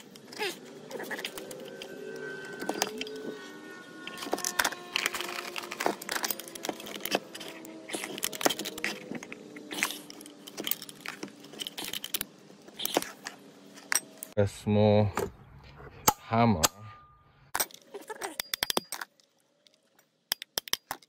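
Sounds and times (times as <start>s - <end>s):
metal tools clinking on workbench: 4.1s - 9.1s.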